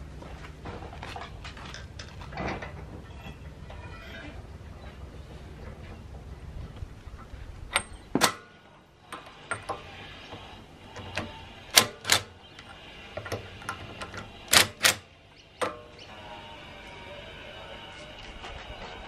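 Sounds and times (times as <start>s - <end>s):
metal clicks and knocks: 9.1s - 15.0s.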